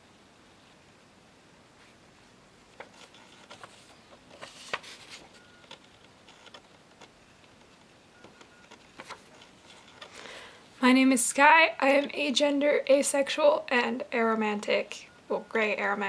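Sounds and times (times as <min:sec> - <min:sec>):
paper cards rustling: 0:02.7 - 0:07.9, 0:08.6 - 0:10.5.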